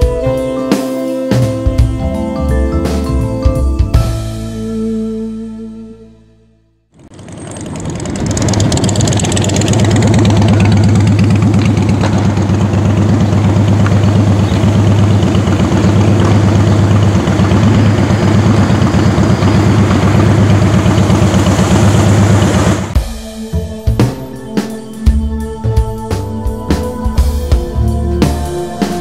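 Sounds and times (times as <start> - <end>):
vehicle engine idling: 7.0 - 23.0.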